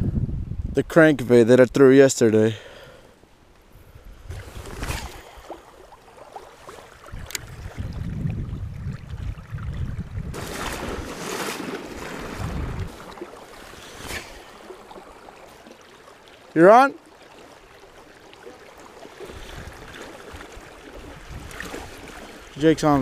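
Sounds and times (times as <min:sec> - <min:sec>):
wind buffeting microphone: 0:00.0 - 0:00.9, 0:06.9 - 0:11.2, 0:11.9 - 0:13.2, 0:19.3 - 0:23.0
river water rushing: 0:10.4 - 0:23.0.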